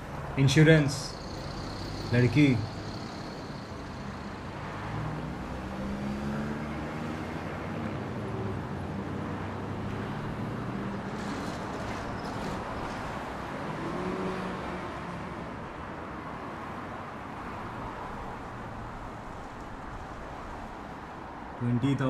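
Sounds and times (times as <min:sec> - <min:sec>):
motorcycle passing: 0:00.0 - 0:12.1
car engines passing: 0:00.0 - 0:22.0.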